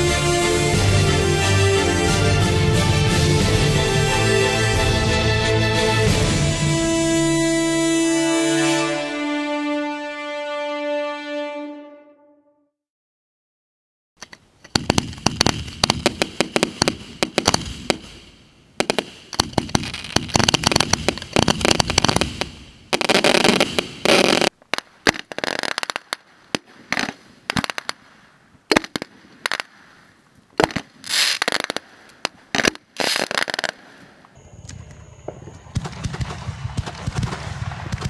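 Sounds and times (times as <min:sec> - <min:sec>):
fireworks crackling: 0:14.6 - 0:38.0
fireworks bangs: 0:14.7 - 0:38.0.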